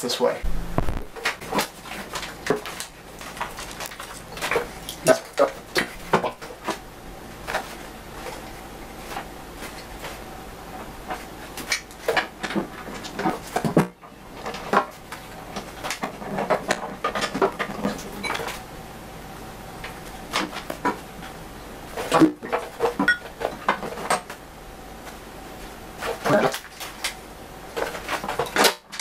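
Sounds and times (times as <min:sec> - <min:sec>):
tools and small parts clattering: 0:01.2 - 0:06.8, 0:11.1 - 0:18.6, 0:21.9 - 0:24.4.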